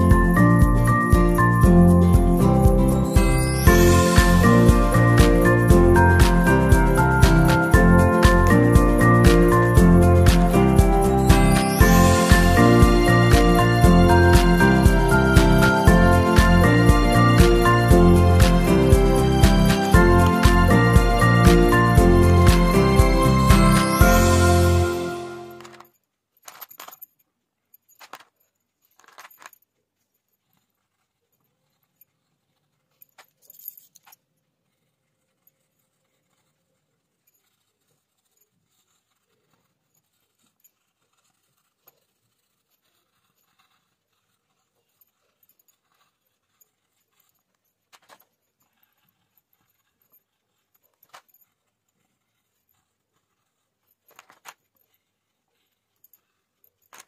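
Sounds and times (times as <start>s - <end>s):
coloured pencil scratching paper: 0.0s - 25.8s, 34.4s - 56.8s
metal bangles jingling: 0.0s - 57.0s
pencil clicks: 25.5s - 27.1s, 27.8s - 29.6s, 30.4s - 55.0s.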